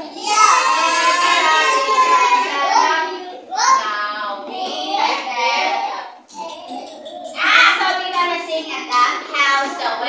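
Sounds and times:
children singing loudly: 0.0s - 7.6s.

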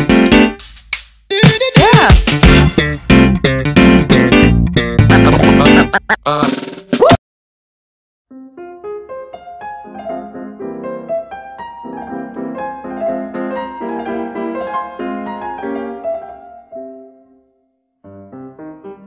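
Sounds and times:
piano music: 0.0s - 0.6s, 2.3s - 6.0s, 8.3s - 19.0s.

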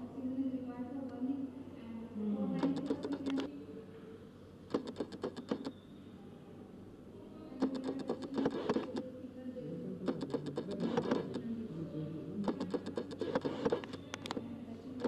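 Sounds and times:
indistinct voices: 1.8s - 3.7s, 7.6s - 15.0s.

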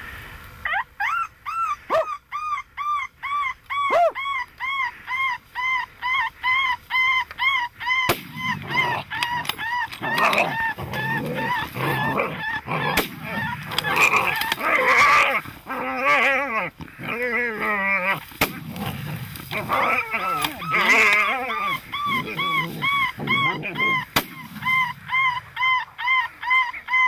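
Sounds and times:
predator call yelping distress cries: 0.6s - 27.0s
rustling handling noise: 8.2s - 25.0s.

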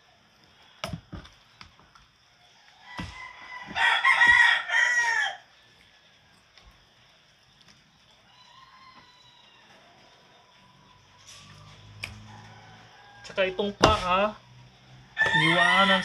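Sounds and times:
rooster crowing: 2.4s - 6.4s, 8.1s - 16.0s
knife chopping knocks: 13.8s - 14.2s.

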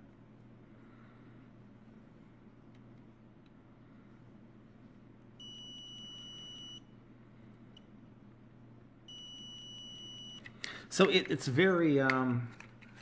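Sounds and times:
multimeter high beep: 5.4s - 6.8s, 9.1s - 10.5s.

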